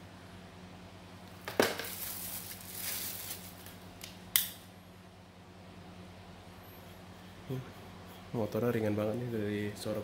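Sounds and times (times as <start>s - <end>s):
plastic and cardboard rustling: 1.5s - 3.8s
sharp plastic snap: 4.0s - 4.6s.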